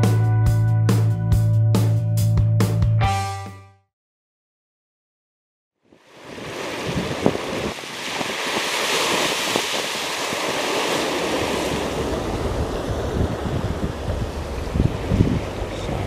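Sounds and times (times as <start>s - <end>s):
surf breaking over rocks: 5.9s - 16.0s
wind on microphone: 6.3s - 16.0s.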